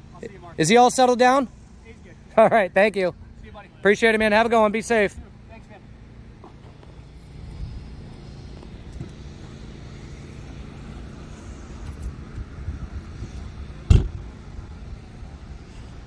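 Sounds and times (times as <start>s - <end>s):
low vehicle hum: 0.0s - 16.0s
car door shutting: 13.8s - 14.2s.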